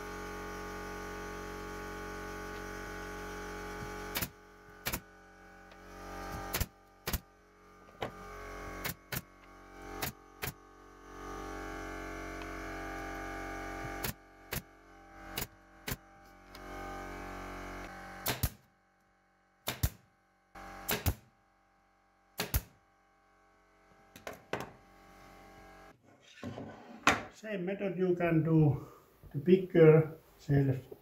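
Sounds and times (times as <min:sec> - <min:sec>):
air compressor humming: 0:00.0 - 0:18.7
nail gun firing into wood: 0:04.1 - 0:05.1, 0:06.3 - 0:07.3, 0:08.8 - 0:09.3, 0:10.0 - 0:10.6, 0:14.0 - 0:14.7, 0:15.4 - 0:16.0, 0:18.2 - 0:18.7, 0:19.6 - 0:20.1, 0:20.8 - 0:21.3, 0:22.4 - 0:22.8.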